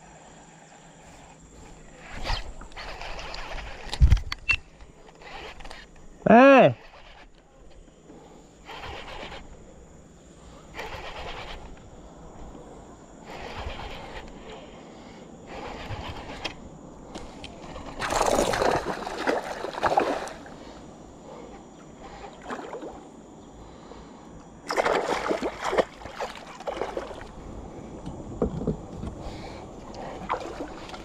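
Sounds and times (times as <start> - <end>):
fishing reel being cranked: 2.0 - 7.5, 8.6 - 9.6, 10.8 - 11.8, 13.3 - 14.6, 15.5 - 16.6.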